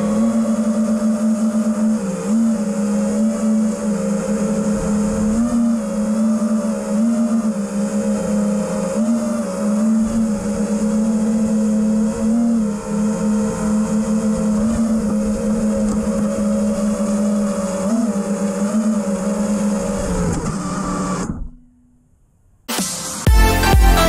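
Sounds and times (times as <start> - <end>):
quadcopter motors whining: 0.0 - 21.7.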